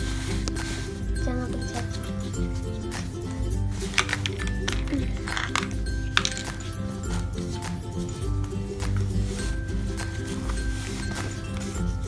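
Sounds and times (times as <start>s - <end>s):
background music with held notes: 0.0s - 12.0s.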